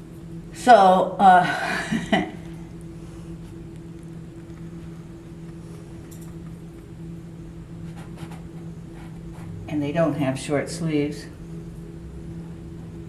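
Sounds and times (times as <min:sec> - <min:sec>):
low room hum: 0:00.0 - 0:13.0
paintbrush stroking canvas: 0:07.8 - 0:09.6.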